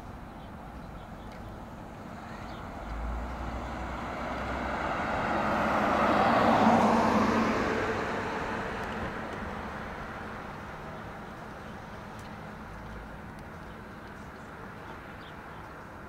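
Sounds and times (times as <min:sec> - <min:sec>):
vehicle driving past: 0:02.1 - 0:10.5.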